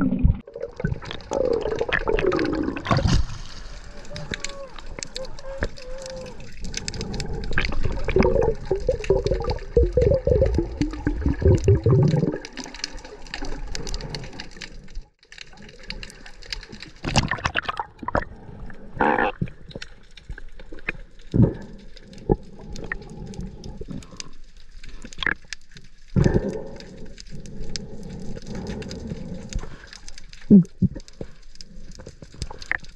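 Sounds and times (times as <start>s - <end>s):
water splashes: 0.0s - 23.0s
water bubbling underwater: 0.0s - 24.3s
crackles: 0.0s - 32.9s.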